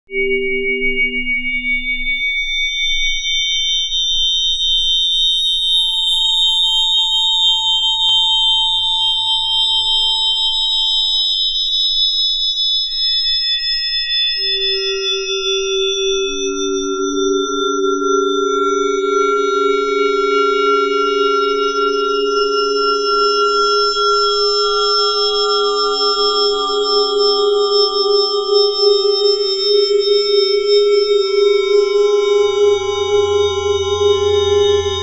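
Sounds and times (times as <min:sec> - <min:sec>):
sustained high gong tones: 0:16.2 - 0:35.0
low hum tones: 0:30.6 - 0:35.0.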